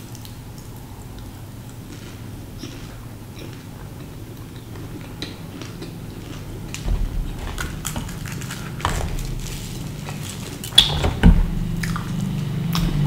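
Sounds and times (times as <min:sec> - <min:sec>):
chewing with wet mouth clicks: 0:00.0 - 0:10.9, 0:11.7 - 0:13.0
thump: 0:06.8 - 0:09.7.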